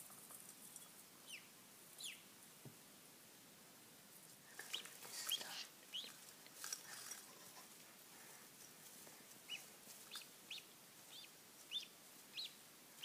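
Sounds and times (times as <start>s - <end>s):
ducklings peeping: 0.8s - 2.3s, 4.6s - 6.3s, 9.3s - 13.0s
rustling of straw: 4.2s - 13.0s.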